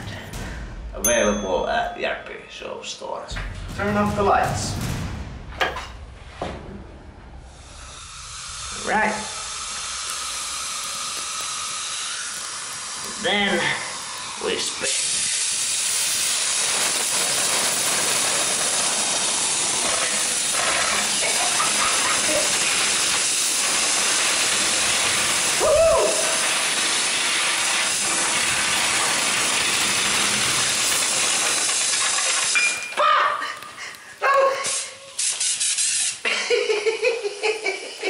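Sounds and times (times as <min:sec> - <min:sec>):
spinner whine: 0:06.0 - 0:32.7
compressed air hissing: 0:07.3 - 0:32.7, 0:33.7 - 0:36.8.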